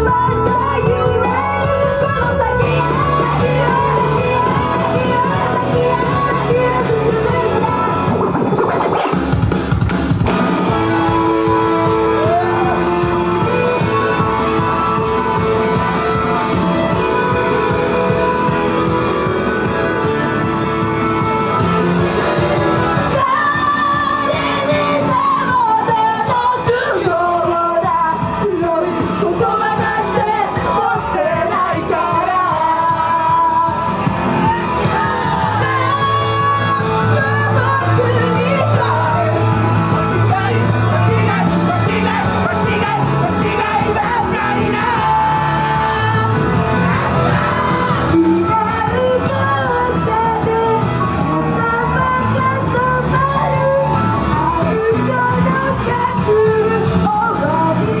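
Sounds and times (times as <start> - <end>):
women singing into microphones: 0.0 - 9.1, 22.8 - 58.0
rock backing music: 0.0 - 58.0
people shouting: 10.5 - 13.3.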